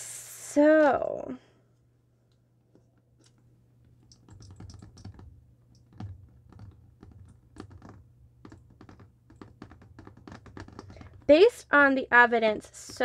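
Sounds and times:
low steady hum: 0.0 - 13.0
keyboard typing clicks: 4.0 - 11.1.

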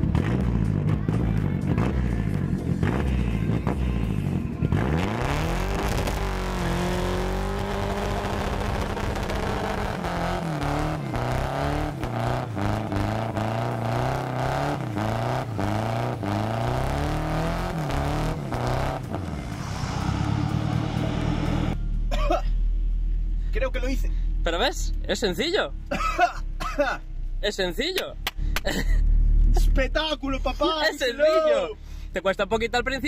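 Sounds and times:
engine crackles: 0.0 - 30.6
car engine revving hard: 2.8 - 21.9.

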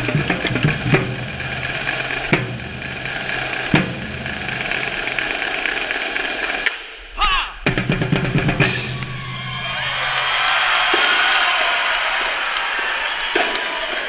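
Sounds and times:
marching drumline: 0.0 - 14.0
person shouting: 7.2 - 7.6
crowd noise: 8.6 - 14.0.

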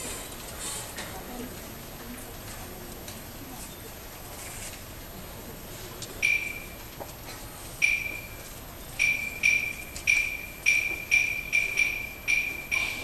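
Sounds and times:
small metal percussion strikes: 9.0 - 13.0.

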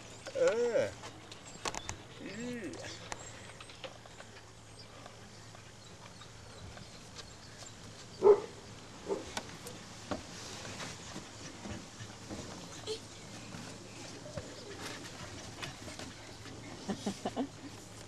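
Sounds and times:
dog barking: 8.2 - 8.5.

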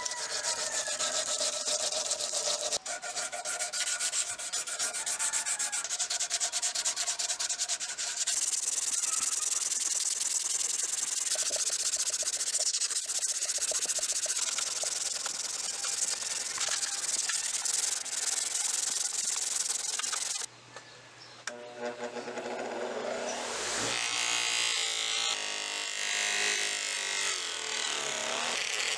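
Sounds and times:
sandpaper rubbing on steel: 0.0 - 20.5.

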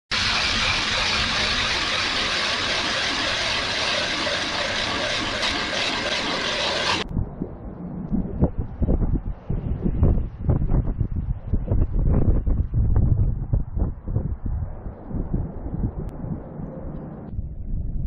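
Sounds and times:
ice auger boring: 0.2 - 7.0
wind buffeting microphone: 7.0 - 18.0.

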